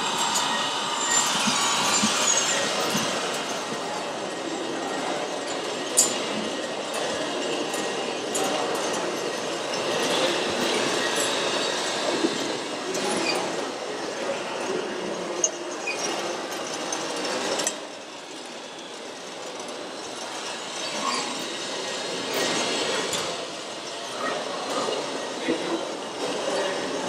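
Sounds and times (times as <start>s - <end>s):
toy truck motor whirring: 0.1s - 3.8s.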